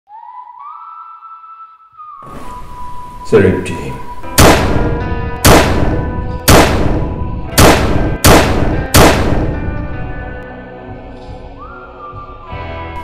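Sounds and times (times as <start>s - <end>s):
quiet background music: 0.1s - 13.0s
loud sharp bangs: 4.2s - 9.9s.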